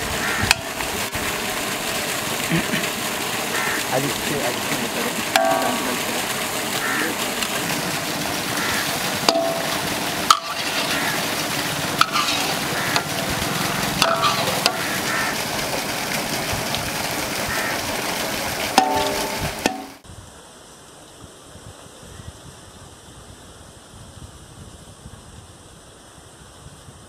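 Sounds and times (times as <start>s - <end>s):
chicken sizzling in pan: 0.0s - 0.4s, 3.5s - 3.8s, 7.7s - 15.4s, 17.5s - 17.7s
metal spatula scraping pan: 9.3s - 11.2s, 12.0s - 13.3s, 14.0s - 15.0s.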